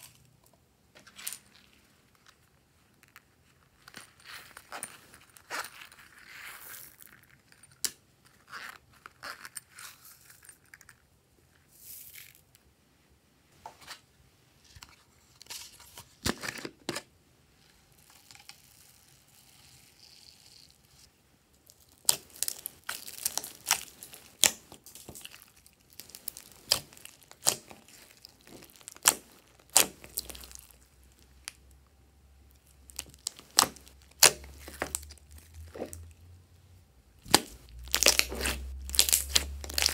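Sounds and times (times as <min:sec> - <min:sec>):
foam beads pouring: 0:18.0 - 0:21.0
slime popping and crackling: 0:21.7 - 0:30.8, 0:32.8 - 0:36.1, 0:37.2 - 0:39.9
slime squishing: 0:21.7 - 0:31.6, 0:32.6 - 0:36.2, 0:37.2 - 0:39.9.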